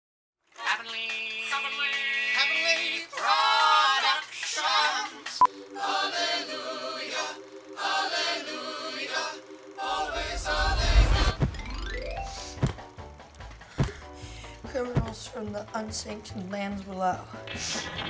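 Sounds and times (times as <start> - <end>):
choir singing: 3.0 - 12.0
low rumble: 10.0 - 12.1.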